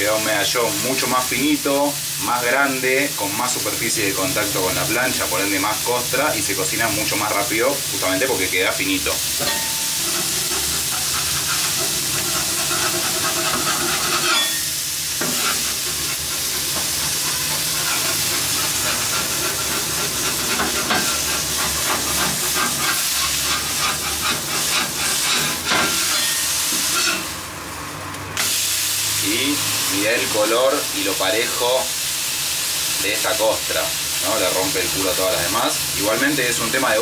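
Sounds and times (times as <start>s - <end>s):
beef patty sizzling on griddle: 0.0s - 37.0s
metal spatula scraping steel: 9.3s - 27.4s.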